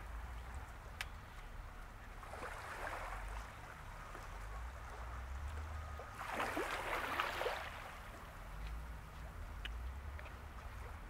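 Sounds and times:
low steady rumble: 0.0 - 11.0
small waves lapping and splashing: 0.0 - 11.0.

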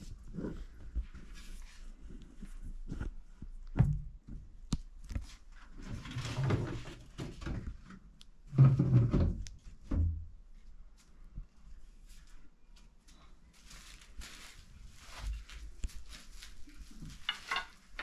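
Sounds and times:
objects knocking and thumping: 17.1 - 18.0.

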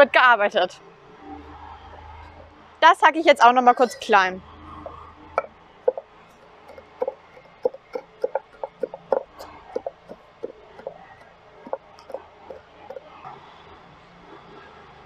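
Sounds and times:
knife chopping on wooden board: 6.7 - 11.0.

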